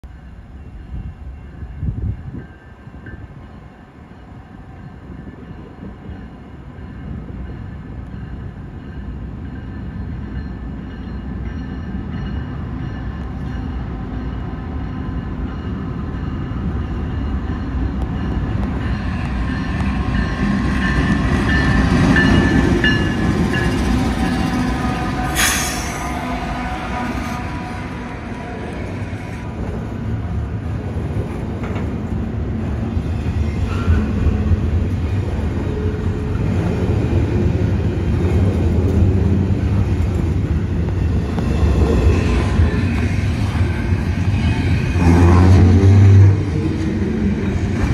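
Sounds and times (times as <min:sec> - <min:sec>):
diesel locomotives passing: 0:00.0 - 0:47.9.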